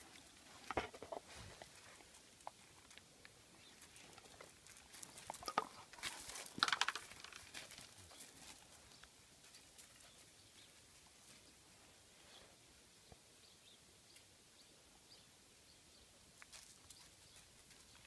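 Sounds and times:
stick and paws crunching on gravel: 0:00.0 - 0:11.6, 0:16.4 - 0:18.0.

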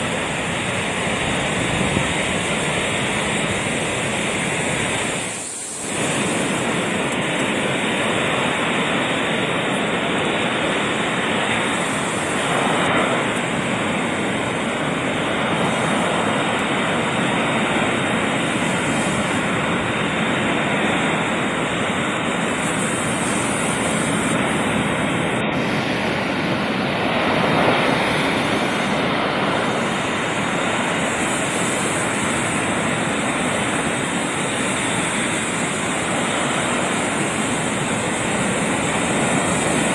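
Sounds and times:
ocean surf breaking on beach: 0:00.0 - 0:39.9.

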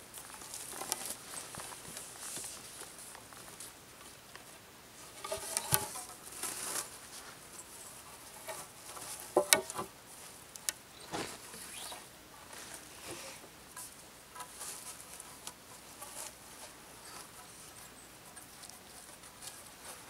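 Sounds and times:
wood scraping rubs: 0:05.0 - 0:20.0
sharp clicks of wood: 0:09.4 - 0:09.9.

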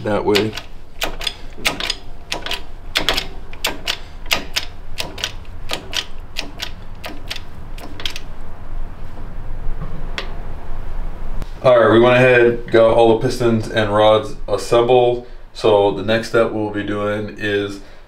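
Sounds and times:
metal clicks and taps: 0:00.3 - 0:08.3.

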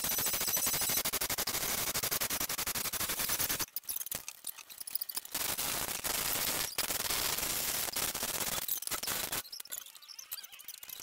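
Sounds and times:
chain hoist clicking rapidly: 0:00.0 - 0:06.1.

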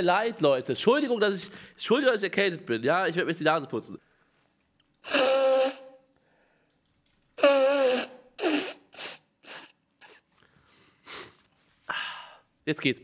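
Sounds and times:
man blowing nose: 0:05.0 - 0:06.0, 0:07.4 - 0:11.5.

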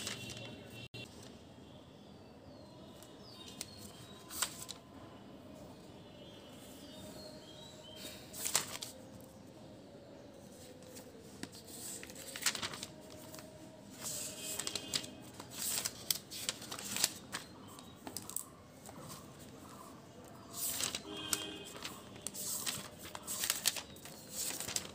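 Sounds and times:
book pages turning: 0:00.0 - 0:00.5, 0:03.5 - 0:04.8, 0:08.0 - 0:09.0, 0:10.6 - 0:24.9.

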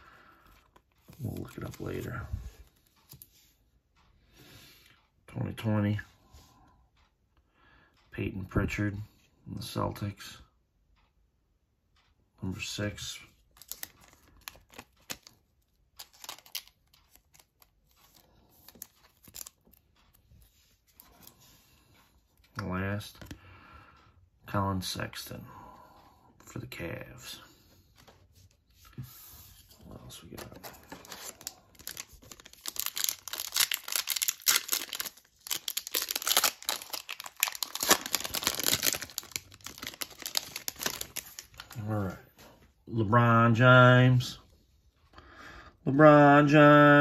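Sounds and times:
thin plastic crinkling: 0:13.5 - 0:20.2, 0:30.2 - 0:41.9.

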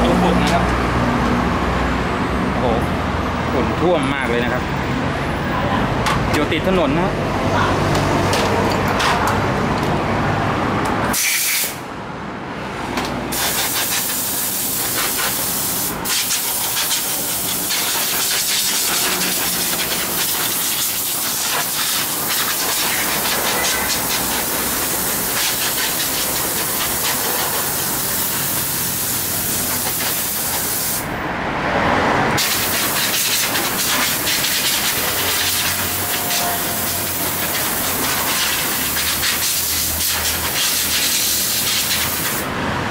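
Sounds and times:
compressed air hose hissing: 0:11.1 - 0:11.8, 0:13.3 - 0:31.1, 0:32.4 - 0:42.5.

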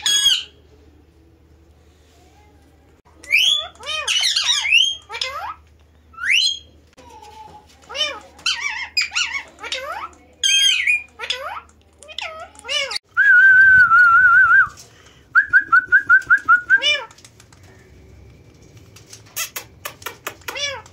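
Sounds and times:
parakeets chirping and whistling: 0:03.3 - 0:05.6, 0:06.2 - 0:06.8.

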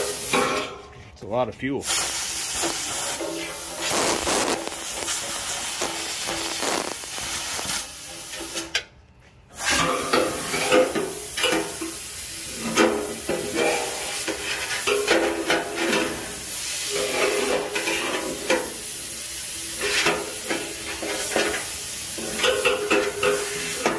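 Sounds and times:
air blow gun hissing: 0:00.0 - 0:00.4, 0:01.8 - 0:08.7, 0:09.6 - 0:23.9.

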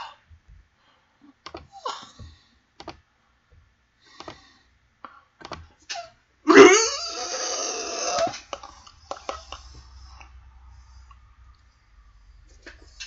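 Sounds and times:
mouse and keyboard clicking: 0:04.2 - 0:04.4, 0:05.4 - 0:05.7.

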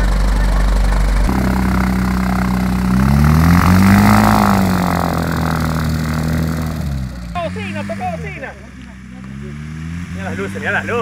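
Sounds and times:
propeller aircraft engine: 0:00.0 - 0:08.1.

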